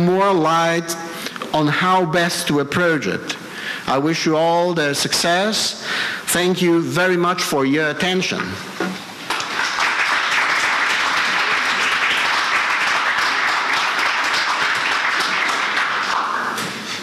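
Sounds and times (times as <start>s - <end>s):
audience applauding: 9.3s - 16.8s.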